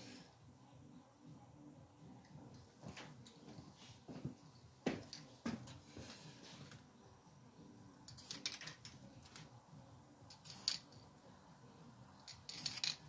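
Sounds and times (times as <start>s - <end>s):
spray paint can hissing: 8.1s - 9.5s, 10.3s - 11.0s, 12.3s - 13.0s.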